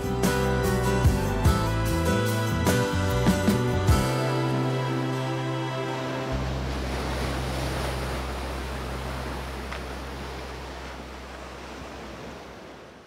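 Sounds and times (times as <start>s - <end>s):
ocean surf washing onto beach: 4.2s - 13.0s.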